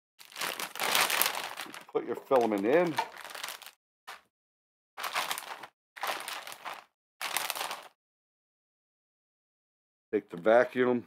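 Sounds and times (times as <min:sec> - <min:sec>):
plastic bag crinkling: 0:00.2 - 0:04.2, 0:05.0 - 0:08.0.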